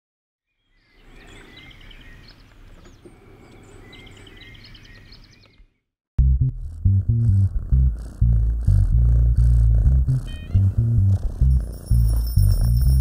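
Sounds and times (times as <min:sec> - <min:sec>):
small birds singing: 0:00.4 - 0:05.9.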